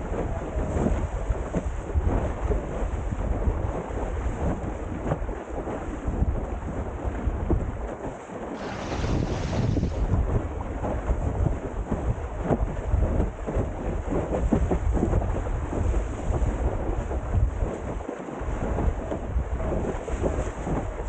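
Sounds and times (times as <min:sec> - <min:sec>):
rushing water: 0:00.0 - 0:21.0
water slapping against hull: 0:00.0 - 0:21.0
wind buffeting microphone: 0:00.0 - 0:21.0.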